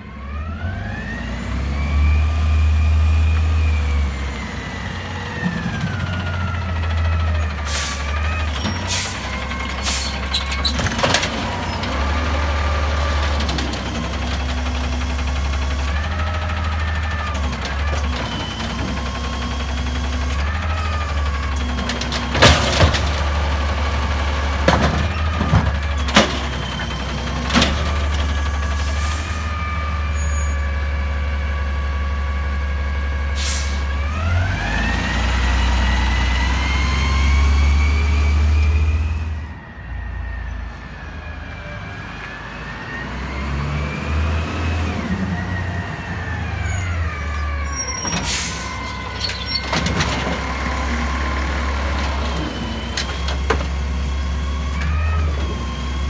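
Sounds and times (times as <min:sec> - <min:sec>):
garbage truck engine: 0:00.0 - 0:56.0.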